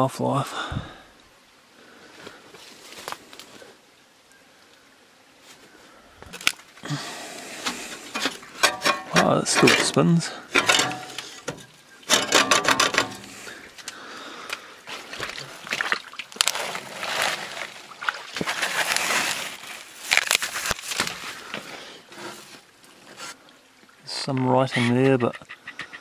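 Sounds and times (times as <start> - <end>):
leaves rustling: 0.0 - 25.1
knocks and scrapes: 7.6 - 13.5.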